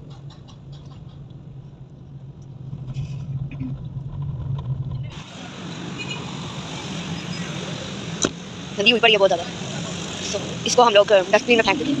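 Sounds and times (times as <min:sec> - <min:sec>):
car engine and tyres drone: 0:00.0 - 0:12.0.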